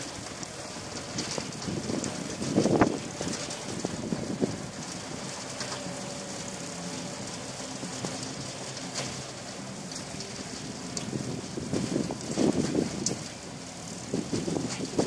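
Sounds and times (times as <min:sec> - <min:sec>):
wind on microphone: 0:01.0 - 0:05.4, 0:10.8 - 0:15.0.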